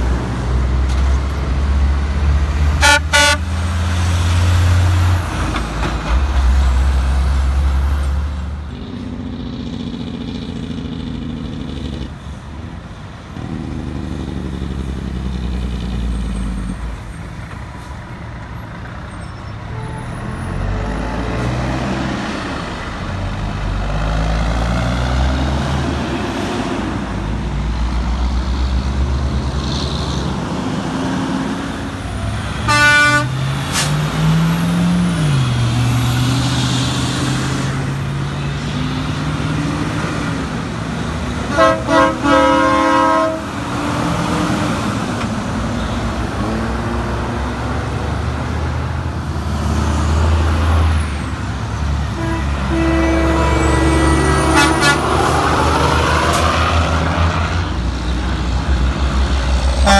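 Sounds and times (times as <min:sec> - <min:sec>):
diesel truck engines rumbling: 0:00.0 - 0:59.9
horn toots: 0:02.8 - 0:03.5, 0:32.6 - 0:33.9, 0:41.5 - 0:43.6, 0:52.1 - 0:56.4.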